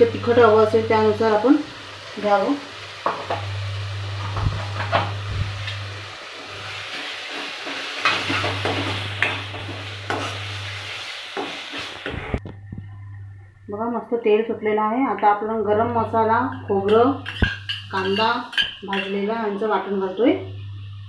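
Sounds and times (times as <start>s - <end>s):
oil sizzling: 0.0s - 12.4s, 15.8s - 21.0s
spatula scraping pan: 16.5s - 19.3s.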